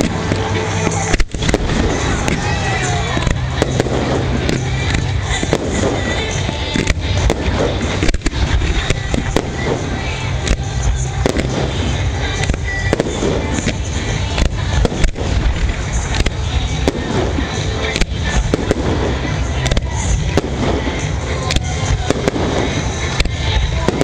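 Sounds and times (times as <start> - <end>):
fireworks bangs and crackling: 0.0 - 24.0.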